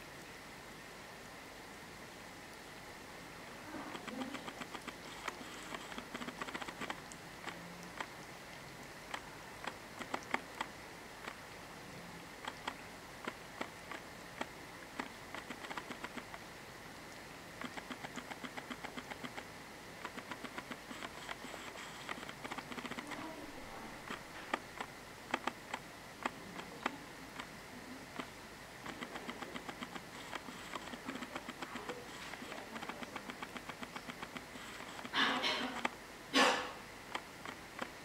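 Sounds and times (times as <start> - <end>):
cat licking fur: 3.5 - 11.5, 12.2 - 16.4, 17.0 - 35.9.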